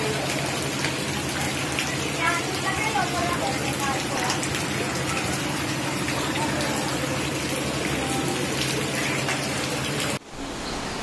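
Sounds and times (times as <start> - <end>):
heavy rain and floodwater rushing: 0.0 - 11.0
faint voices: 1.3 - 9.9.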